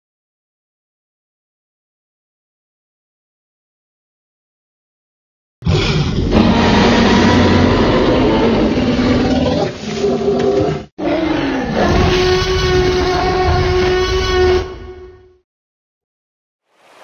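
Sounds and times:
dinosaur roar: 5.6s - 15.1s.

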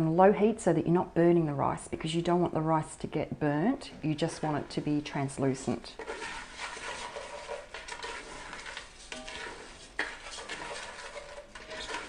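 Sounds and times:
soft sizzle: 3.6s - 12.0s
rice stirred in saucepan: 4.2s - 12.0s.

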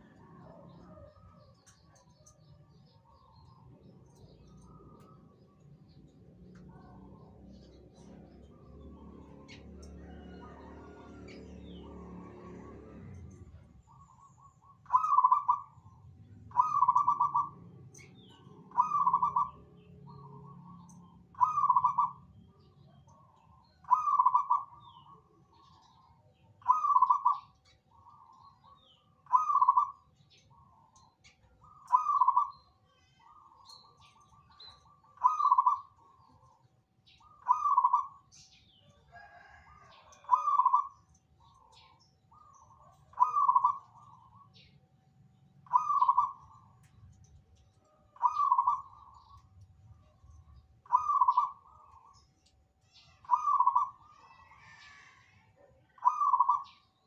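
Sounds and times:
dove cooing: 6.8s - 18.1s, 18.7s - 22.2s, 23.0s - 25.9s, 26.6s - 30.8s, 31.6s - 32.5s, 34.0s - 36.5s, 37.2s - 38.3s, 39.1s - 44.7s, 45.6s - 46.9s, 48.1s - 49.4s, 50.8s - 52.2s, 53.2s - 56.8s.

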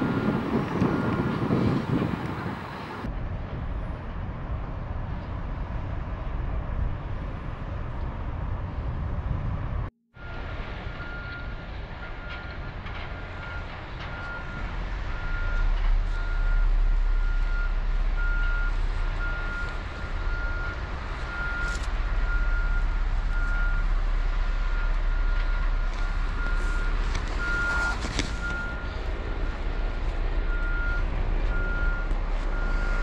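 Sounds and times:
vehicle reversing alarm beeping: 0.0s - 2.1s, 10.2s - 33.0s.

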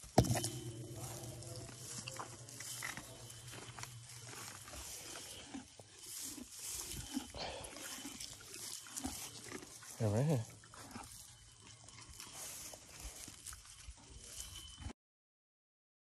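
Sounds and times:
low steady drone: 0.0s - 14.8s
pony breathing: 3.5s - 10.0s.

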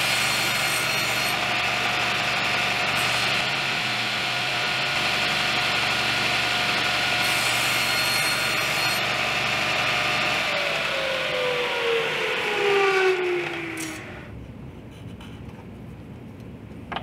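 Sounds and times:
saw blade cutting wood: 0.0s - 4.2s, 5.0s - 9.6s
table saw running: 0.0s - 14.3s.

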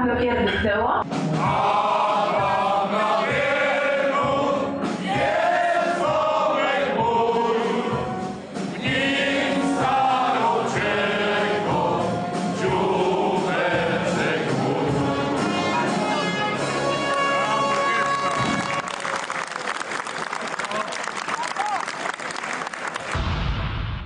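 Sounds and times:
male crowd singing in chorus: 1.4s - 15.7s.

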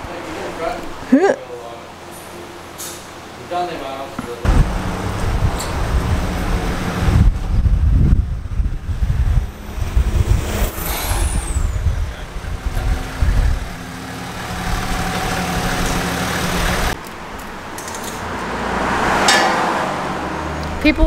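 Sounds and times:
diesel engine rumbling: 4.2s - 21.0s.

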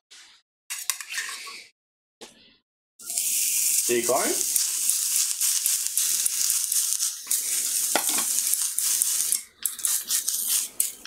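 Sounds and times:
steak sizzling in a frying pan: 3.0s - 11.0s.

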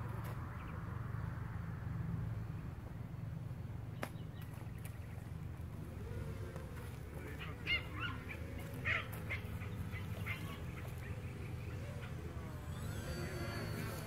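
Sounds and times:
drone motors droning: 0.0s - 14.0s.

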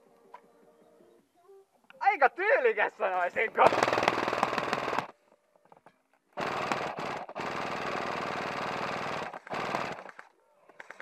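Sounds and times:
airsoft gun full-auto bursts: 3.6s - 5.1s, 6.4s - 10.3s.

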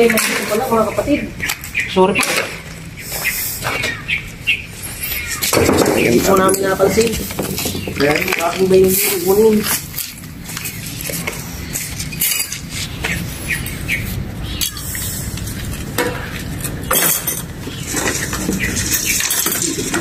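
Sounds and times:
rubble clinking and scraping: 4.8s - 20.0s.

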